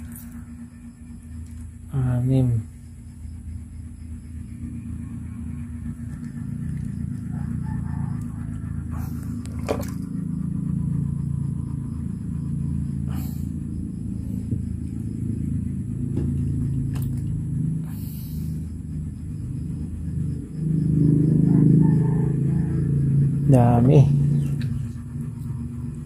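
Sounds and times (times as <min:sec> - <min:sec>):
steady low rumble: 0:00.0 - 0:26.0.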